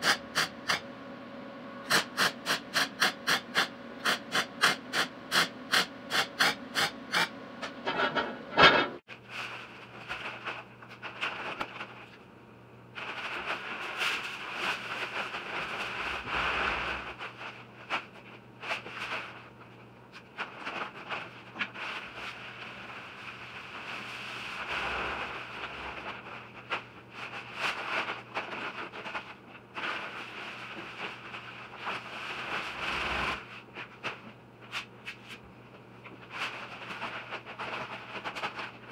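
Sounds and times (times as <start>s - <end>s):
paper bags rustling and scraping: 9.1s - 12.2s, 12.9s - 35.4s, 36.2s - 38.9s.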